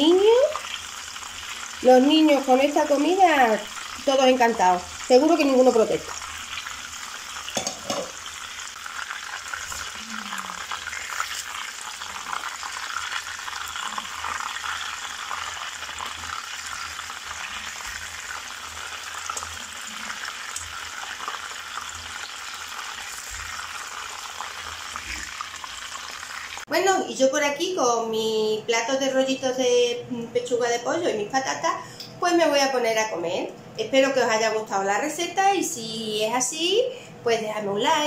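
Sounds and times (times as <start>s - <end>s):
food frying in hot oil: 0.0s - 26.7s.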